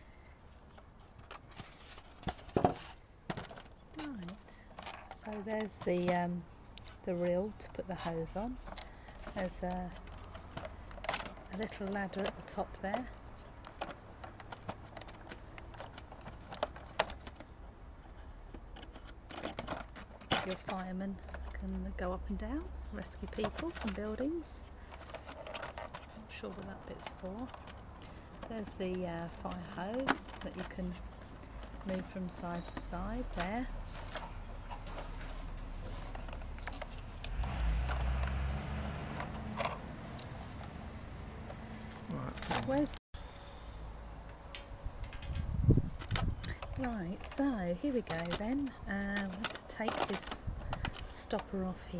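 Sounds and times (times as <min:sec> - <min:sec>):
plastic toy clicks and knocks: 0:46.0 - 0:51.6.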